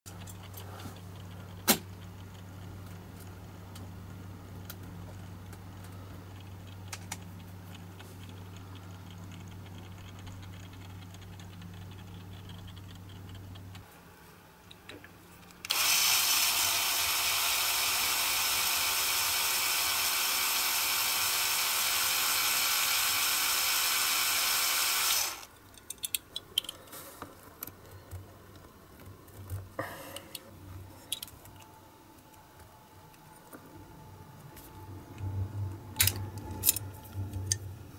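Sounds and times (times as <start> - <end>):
steady low hum: 0.1 - 15.7, 25.3 - 37.9
small electric drill drilling metal: 15.7 - 25.5
metal parts clicking and tapping: 25.5 - 29.6, 36.0 - 37.6.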